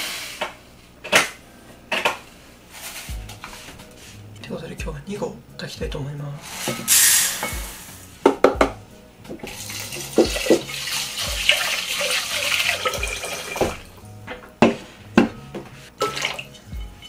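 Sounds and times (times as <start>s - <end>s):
pot clunking: 6.6s - 17.0s
tap running water into pot: 9.3s - 13.8s, 16.0s - 16.5s.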